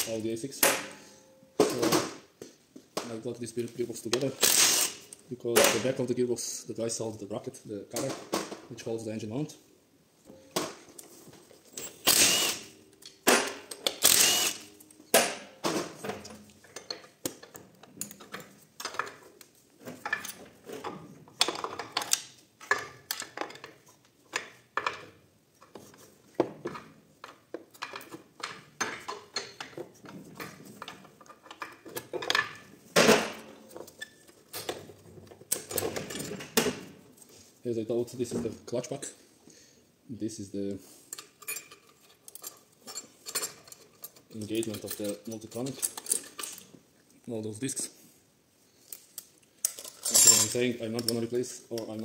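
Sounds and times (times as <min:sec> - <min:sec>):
metal clanking and scraping: 0:49.7 - 0:51.2.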